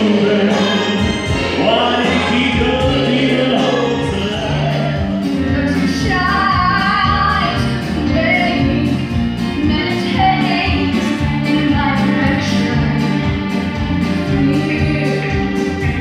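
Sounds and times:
cast singing: 0.0 - 6.9
instrumental accompaniment: 0.0 - 16.0
woman singing: 5.5 - 16.0.

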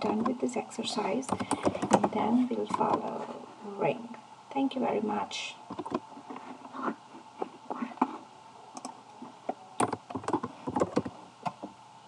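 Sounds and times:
computer keyboard keystrokes: 1.3 - 3.1, 8.8 - 9.0, 9.8 - 11.6.

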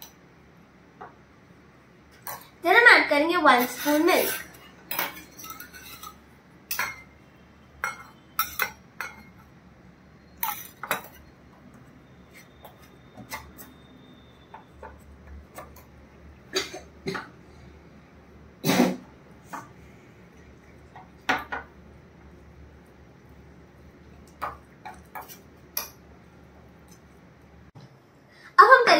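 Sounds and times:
metal spoon clinking in a bowl: 3.6 - 7.1, 7.8 - 9.5, 10.4 - 11.3.

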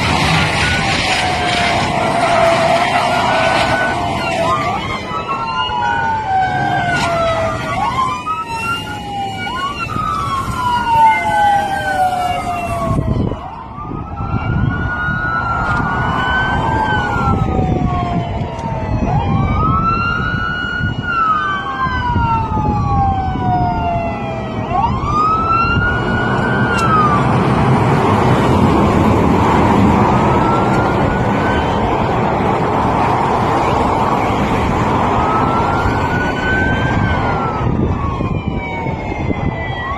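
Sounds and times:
steady rushing noise: 0.0 - 39.6
police sirens wailing: 0.0 - 39.9.

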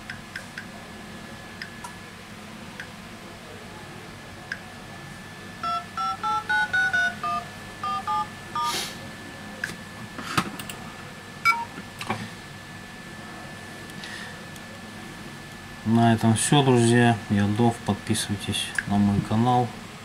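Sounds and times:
touch-tone keypad beeps: 5.6 - 8.7, 11.5 - 11.7.

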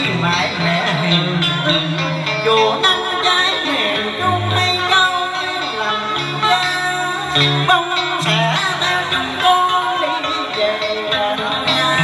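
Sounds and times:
bass line: 0.0 - 5.0
guitar: 0.0 - 12.0.

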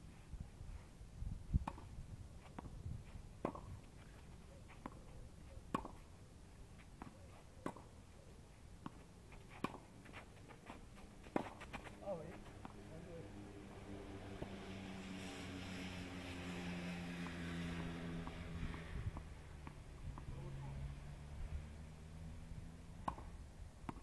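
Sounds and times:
racket hitting tennis ball: 1.6 - 1.9, 3.4 - 4.0, 5.7 - 6.1, 6.8 - 7.9, 11.2 - 11.9, 23.0 - 23.3
tennis ball bouncing: 1.6 - 2.8, 3.4 - 8.0, 8.8 - 10.2, 11.2 - 12.8, 23.0 - 24.0.

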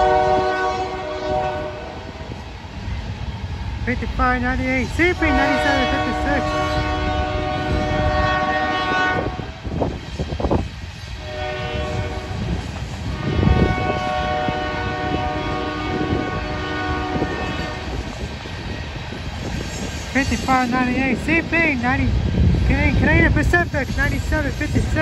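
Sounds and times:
locomotive air horn blasts: 0.0 - 2.0, 5.2 - 9.6, 11.2 - 12.4, 13.1 - 18.0
low rumble of train: 0.0 - 25.0.

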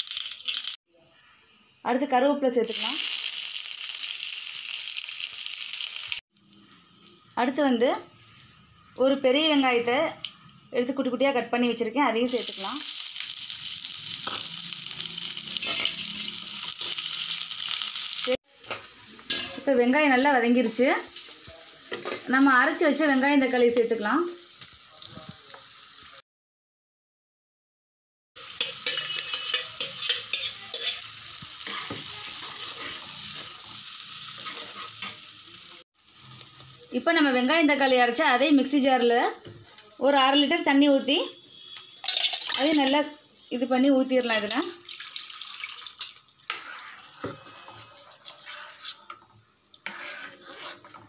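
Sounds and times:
paste sizzling in hot oil: 0.0 - 10.7, 12.2 - 19.7, 24.3 - 26.2, 28.4 - 37.9, 44.4 - 51.0
spoon stirring and scraping: 15.4 - 17.2, 28.4 - 35.2, 46.4 - 51.0
water pouring into gravy: 44.8 - 47.1.

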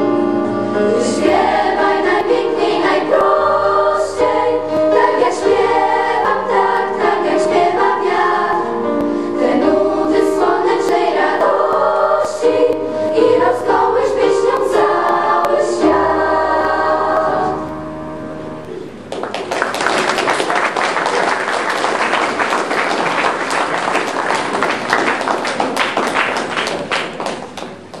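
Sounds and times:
choir singing a chord: 0.0 - 18.8
audience applause: 19.1 - 28.0.

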